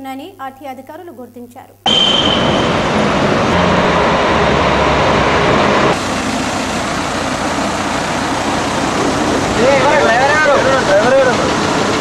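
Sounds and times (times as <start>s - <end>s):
bus engines rumbling: 1.9s - 12.0s.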